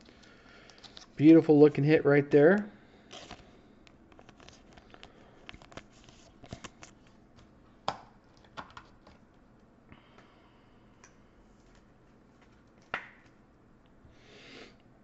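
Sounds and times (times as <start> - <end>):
plastic sleeve rustling: 4.1 - 7.2.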